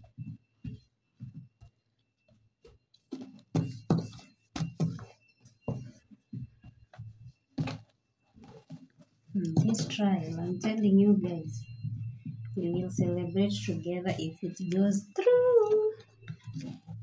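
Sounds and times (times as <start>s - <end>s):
hands patting dough: 0.0s - 13.4s.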